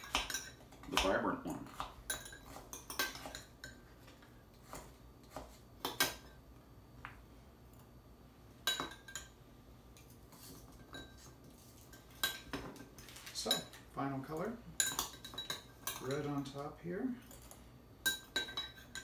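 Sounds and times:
metal spoon clinking ceramic bowl: 14.8s - 16.3s, 17.3s - 19.0s.

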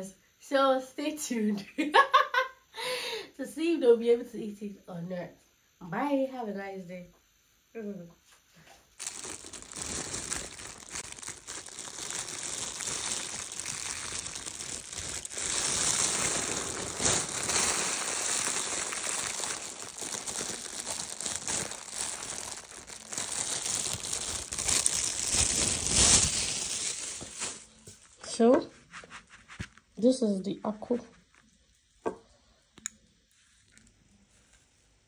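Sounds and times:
plastic bag crinkling: 9.0s - 30.0s.

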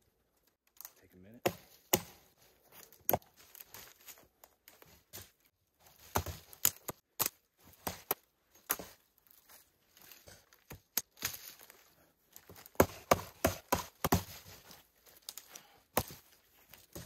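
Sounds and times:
axe chopping wood: 1.4s - 2.3s, 3.0s - 3.3s, 6.0s - 9.0s, 12.5s - 14.6s, 15.9s - 16.2s.

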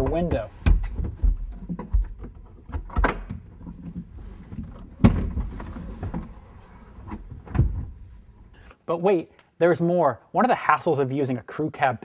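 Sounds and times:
latch clicks and knocks: 0.0s - 4.1s.

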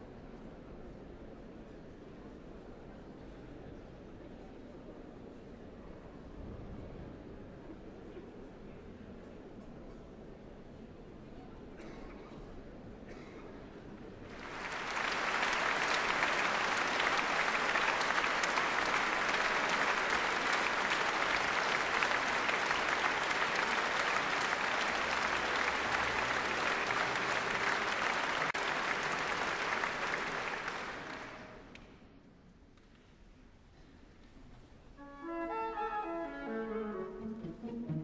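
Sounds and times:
audience applauding: 14.3s - 31.8s.

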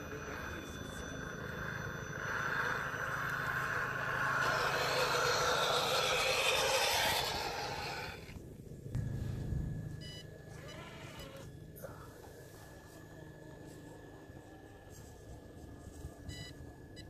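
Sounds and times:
rc truck electric drivetrain: 0.0s - 8.4s.

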